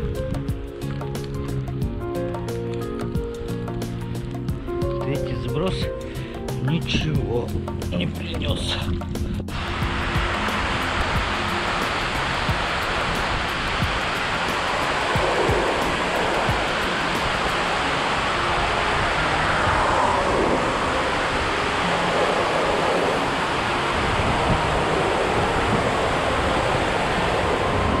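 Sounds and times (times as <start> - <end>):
river rushing over rapids: 9.5 - 28.0.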